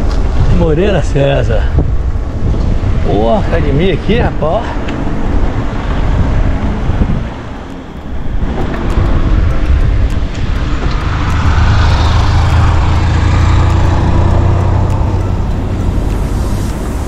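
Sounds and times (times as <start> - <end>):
vehicle passing by: 8.4 - 17.0.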